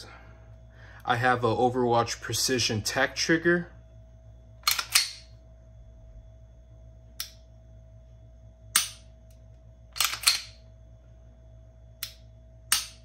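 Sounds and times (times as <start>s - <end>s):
pistol metallic clicks: 4.6s - 5.3s, 8.7s - 9.0s, 10.0s - 10.6s, 12.0s - 13.0s.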